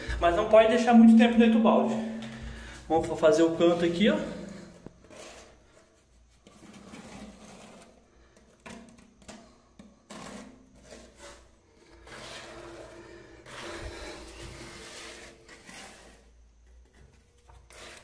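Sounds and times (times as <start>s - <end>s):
plastic spatula scraping resin on tiles: 3.7s - 18.0s.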